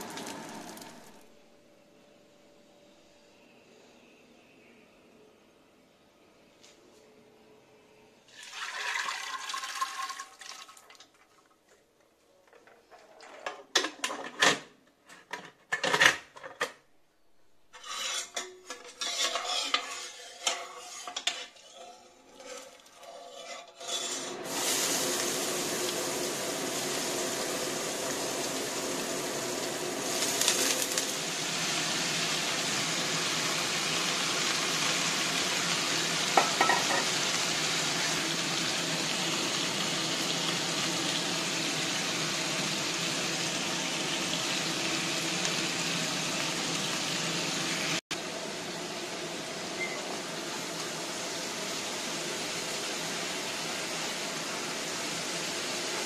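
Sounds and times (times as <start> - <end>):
vegetables sizzling in oil: 0.0 - 1.3, 24.2 - 56.0
cookware clattering and scraping: 12.5 - 16.8, 17.7 - 24.4, 36.4 - 37.2.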